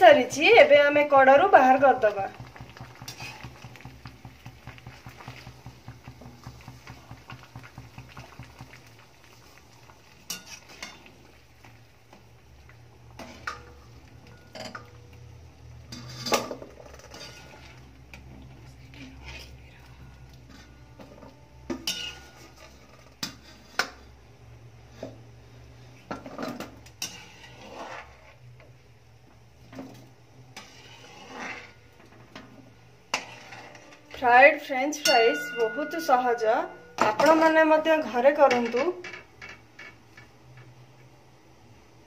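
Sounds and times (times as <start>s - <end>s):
low steady hum: 0.0s - 27.3s, 31.7s - 42.0s
metal spoon scraping metal pot: 2.9s - 3.6s, 10.3s - 11.0s, 15.9s - 17.8s, 21.8s - 24.0s, 27.0s - 28.4s, 30.6s - 31.8s, 33.1s - 34.0s.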